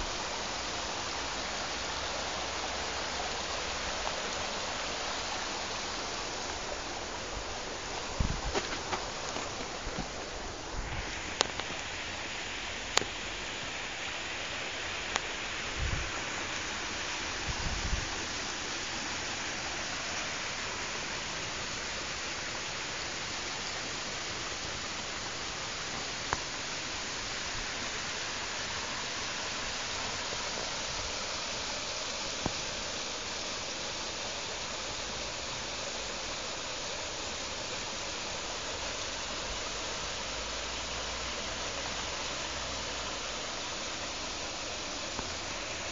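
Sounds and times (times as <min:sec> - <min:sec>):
stream rushing: 0:00.0 - 0:45.9
low bumps: 0:07.8 - 0:11.1.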